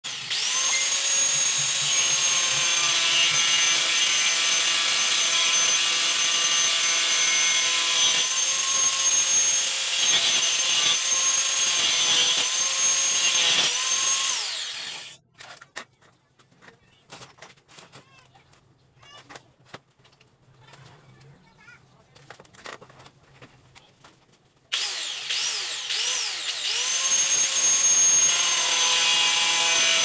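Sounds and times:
angle grinder whining: 0:00.0 - 0:15.2, 0:24.7 - 0:30.0.

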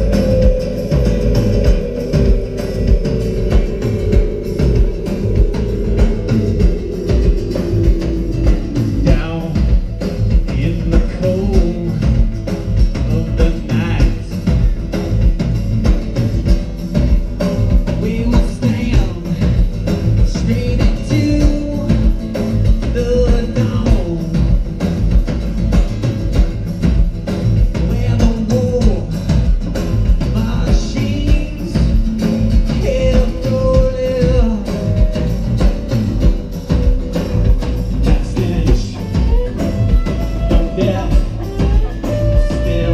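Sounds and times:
person singing: 0:00.0 - 0:14.8, 0:17.4 - 0:19.7, 0:32.7 - 0:35.8, 0:38.0 - 0:42.9
acoustic guitar: 0:00.0 - 0:42.9
bass guitar: 0:00.0 - 0:42.9
drum kit beat: 0:00.0 - 0:42.9
live rock band: 0:00.0 - 0:42.9.

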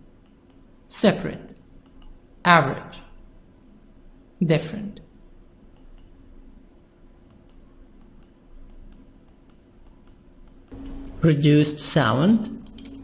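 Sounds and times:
low steady hum: 0:00.0 - 0:13.0
computer clicking: 0:00.2 - 0:00.6, 0:01.8 - 0:02.2, 0:05.7 - 0:06.2, 0:07.3 - 0:11.2, 0:12.5 - 0:13.0.

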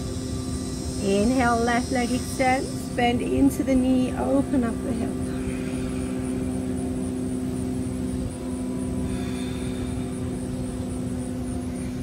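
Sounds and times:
low rumble: 0:00.0 - 0:12.0
steady drone: 0:00.0 - 0:12.0.

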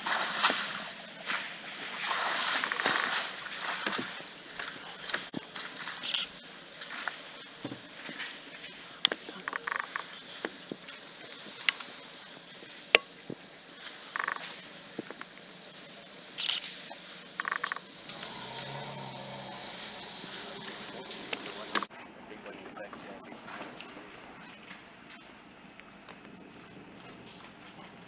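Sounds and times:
high-pitched insect drone: 0:16.4 - 0:23.1.

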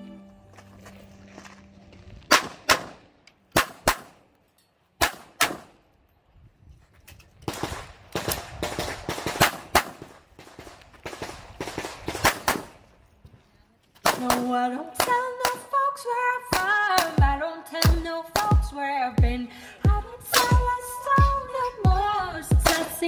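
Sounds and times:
pistol shots: 0:02.3 - 0:04.2, 0:05.0 - 0:05.8, 0:07.5 - 0:12.8.

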